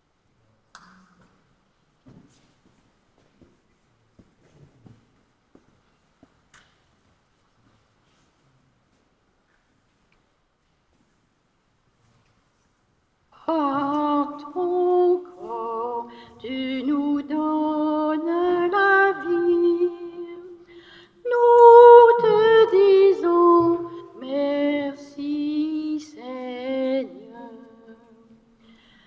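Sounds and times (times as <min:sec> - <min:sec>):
woman singing a hymn: 0:13.4 - 0:28.5.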